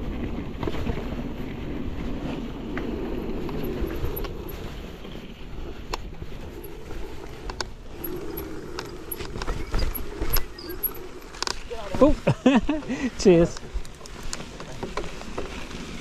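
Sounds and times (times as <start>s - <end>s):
bike tyres rumbling on trail: 0.0s - 16.0s
bike clicks and knocks: 5.9s - 11.8s, 13.5s - 16.0s.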